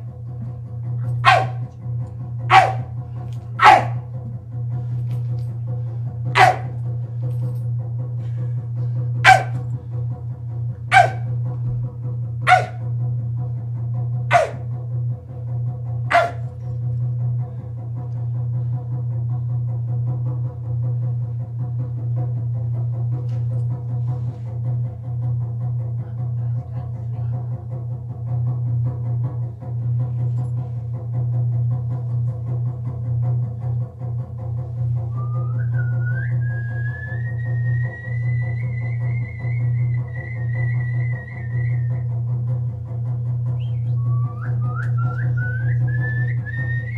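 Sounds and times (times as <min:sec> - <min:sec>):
steady low drone: 0:00.0 - 0:46.9
man making bark-like calls: 0:14.3 - 0:14.6.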